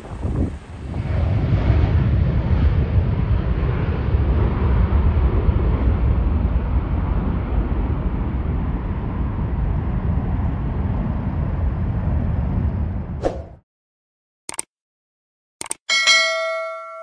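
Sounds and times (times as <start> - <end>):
jet engines at takeoff: 0.0 - 13.2.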